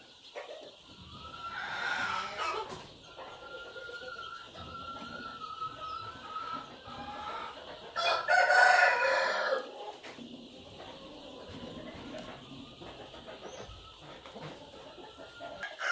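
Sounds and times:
rooster crowing loudly: 8.0 - 9.6.

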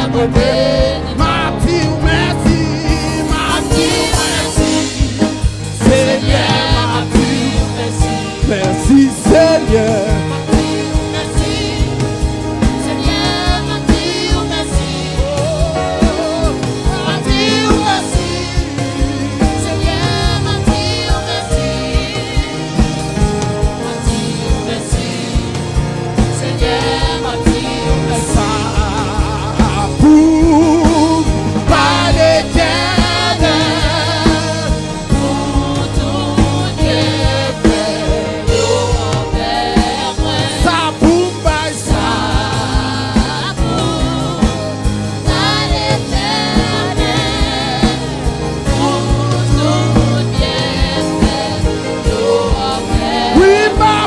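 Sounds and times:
person singing with vibrato: 0.0 - 25.8, 26.4 - 54.0
band with steady drum beat: 0.0 - 54.0.

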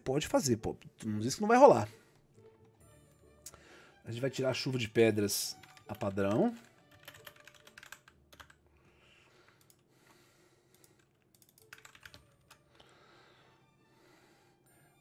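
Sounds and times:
faint keyboard typing: 5.4 - 9.9, 10.7 - 12.9.

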